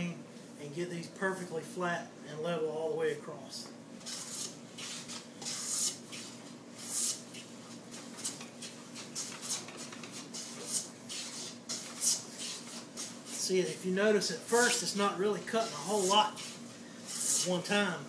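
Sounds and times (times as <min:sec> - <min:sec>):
plane scraping along wood: 0:14.6 - 0:17.6.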